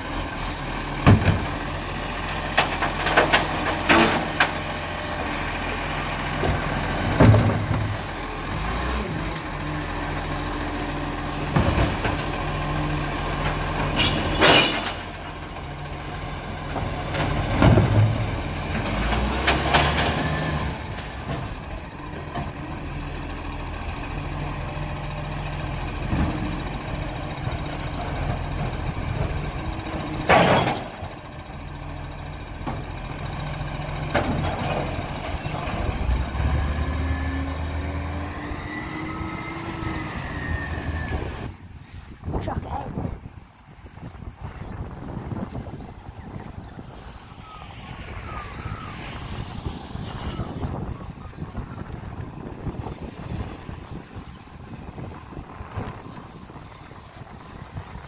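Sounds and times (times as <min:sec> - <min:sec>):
garbage truck diesel engine running: 0:00.0 - 0:41.7.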